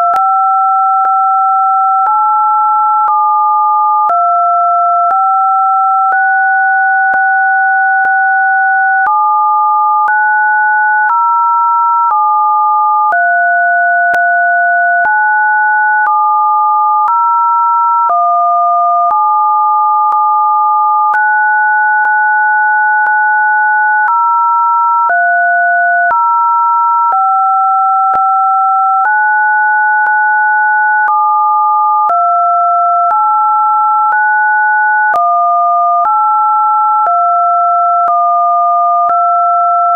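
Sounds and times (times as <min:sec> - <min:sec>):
paired sine tones: 0:00.0 - 0:17.2, 0:25.1 - 0:26.2.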